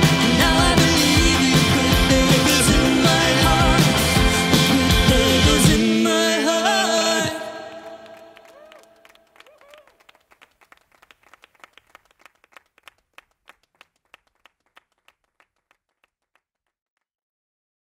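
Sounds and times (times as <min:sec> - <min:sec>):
scattered hand clapping: 0:07.7 - 0:16.4.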